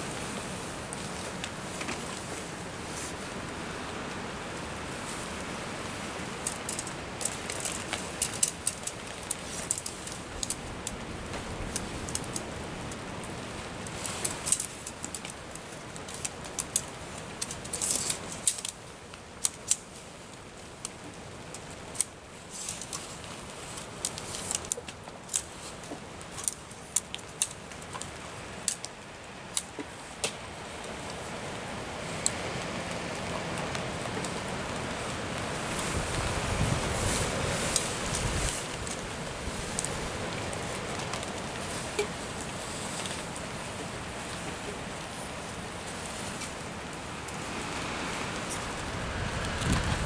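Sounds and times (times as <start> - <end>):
tent poles clicking and rattling: 0.2 - 2.6, 5.8 - 50.0
rain hissing: 19.6 - 50.0.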